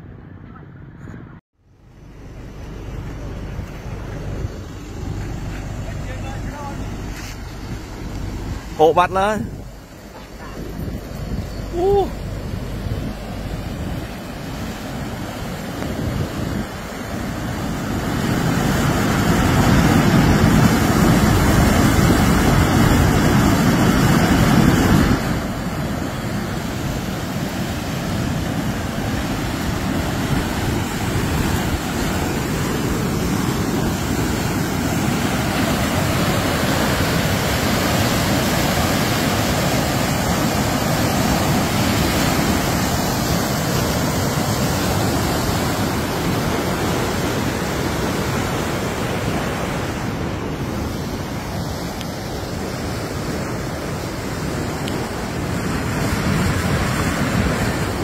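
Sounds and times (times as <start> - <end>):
deep rumble: 0.0 - 8.8
floodwater rushing: 2.0 - 58.0
wind buffeting microphone: 2.3 - 58.0.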